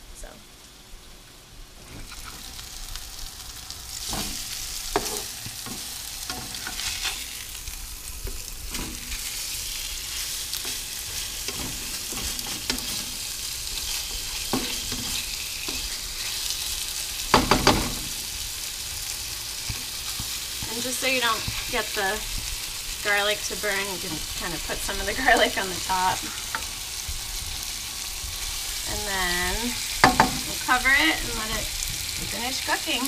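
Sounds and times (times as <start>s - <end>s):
fish sizzling in frying pan: 0.6s - 33.0s
spatula scraping pan: 4.0s - 7.6s, 8.3s - 18.2s
spatula clatter: 4.1s - 7.4s, 10.2s - 16.4s.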